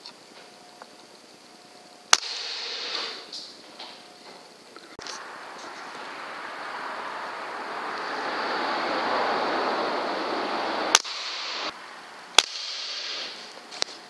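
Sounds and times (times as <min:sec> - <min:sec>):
air rifle firing: 0:02.1 - 0:03.3, 0:10.9 - 0:11.7, 0:12.3 - 0:14.0
steady rushing noise: 0:05.0 - 0:14.0.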